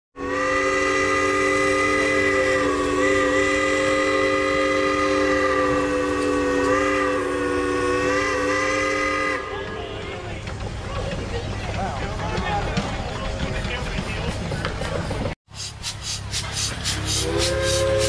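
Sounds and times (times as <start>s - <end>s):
steam chime whistle blast: 17.0s - 18.0s.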